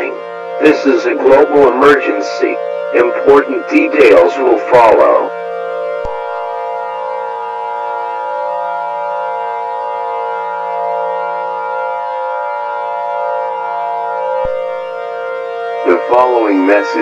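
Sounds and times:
electronic alert tone chord: 12.8 - 17.0.

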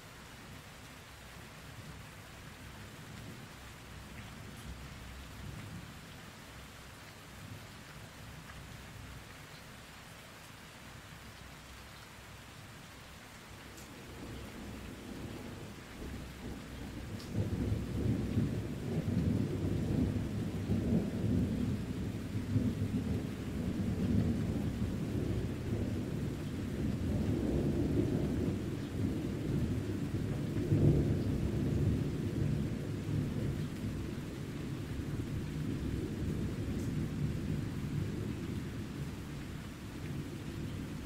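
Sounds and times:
steady rain: 0.0 - 41.0
thunder rumbling: 14.0 - 39.4.

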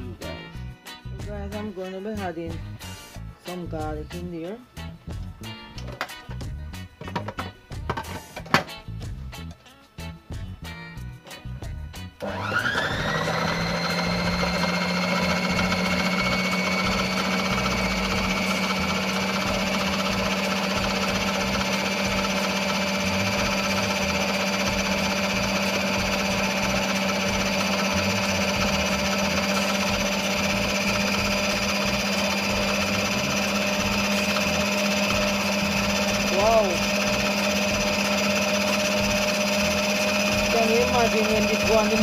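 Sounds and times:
food processor motor whining: 12.2 - 42.0
blade chopping wet mix: 12.6 - 42.0.

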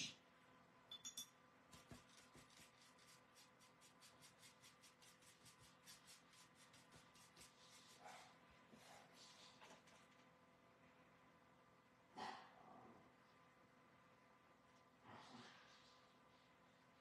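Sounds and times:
paintbrush scratchy strokes: 1.9 - 9.6.

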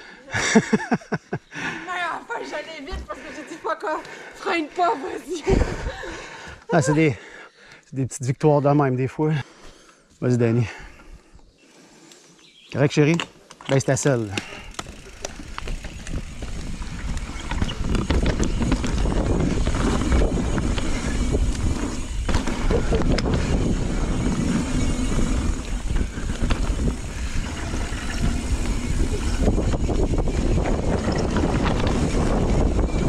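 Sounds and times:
bike rattles and clicks: 12.1 - 33.0
bike tyres rolling over dirt: 12.9 - 33.0
wind buffeting microphone: 14.8 - 33.0.

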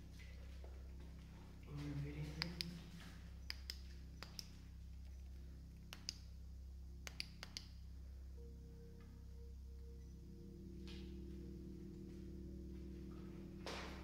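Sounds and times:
low steady hum: 0.0 - 14.0
sharp light clicks: 2.4 - 4.6, 5.8 - 6.3, 7.0 - 7.8.

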